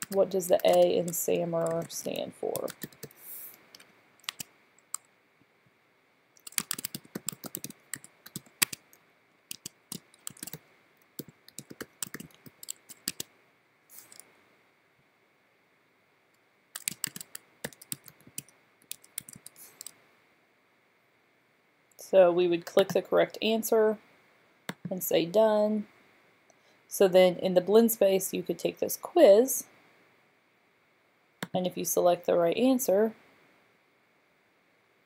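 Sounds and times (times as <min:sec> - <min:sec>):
typing on computer keyboard: 0:00.0 - 0:03.2, 0:04.2 - 0:05.0, 0:06.4 - 0:08.9, 0:09.5 - 0:10.6, 0:11.2 - 0:13.3, 0:16.8 - 0:20.0.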